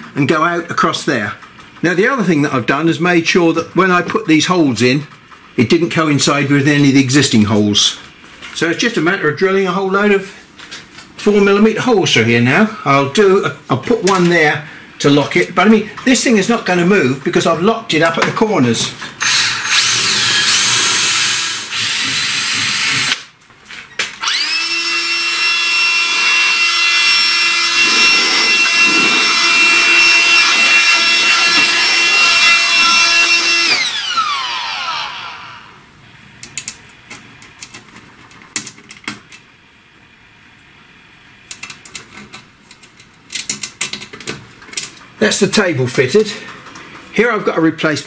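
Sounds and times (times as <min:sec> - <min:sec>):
drill boring through sheet metal: 0:19.2 - 0:23.2, 0:24.2 - 0:35.8
small fan tool whining: 0:19.2 - 0:23.2, 0:24.2 - 0:37.7.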